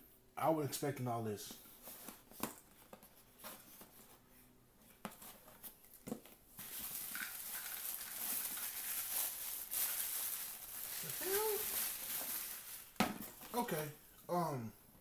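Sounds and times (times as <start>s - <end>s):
plastic bag crinkling: 6.6s - 13.0s.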